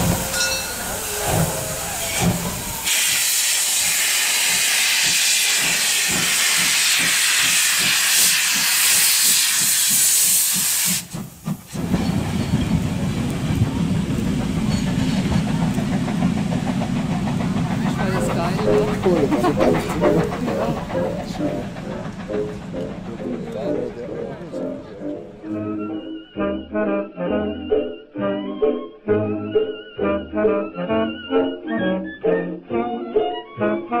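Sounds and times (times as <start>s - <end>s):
steam locomotive hissing steam: 0.0s - 26.6s
train rumbling: 0.0s - 34.0s.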